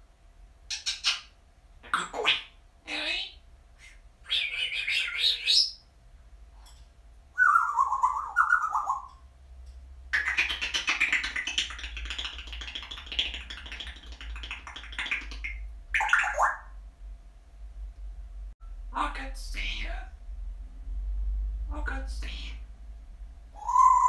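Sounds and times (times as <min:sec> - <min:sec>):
parrot squeaking and whistling: 0:00.7 - 0:01.3, 0:04.3 - 0:05.8, 0:07.4 - 0:09.1, 0:12.7 - 0:16.7, 0:23.6 - 0:24.0
parrot chattering: 0:00.7 - 0:03.4, 0:04.2 - 0:05.8, 0:07.4 - 0:09.2, 0:10.1 - 0:16.8.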